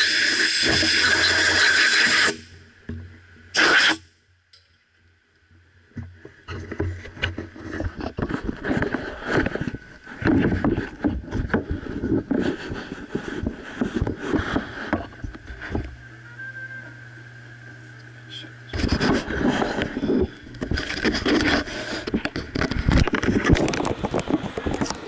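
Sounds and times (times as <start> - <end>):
steady low hum: 2.3 - 25.0
camera handling scrapes and bumps: 6.4 - 15.9, 18.7 - 25.0.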